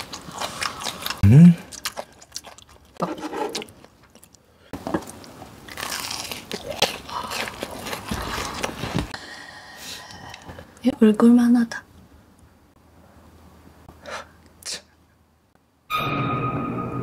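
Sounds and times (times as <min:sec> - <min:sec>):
crunching and chewing fried food: 0:00.0 - 0:09.1.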